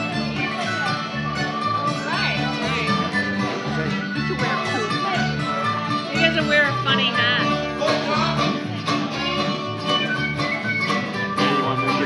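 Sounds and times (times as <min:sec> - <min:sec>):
fiddle: 0:00.0 - 0:12.0
mandolin: 0:00.0 - 0:12.0
strummed guitars: 0:00.0 - 0:12.0
upright bass: 0:00.0 - 0:12.0
tin whistle: 0:09.9 - 0:12.0.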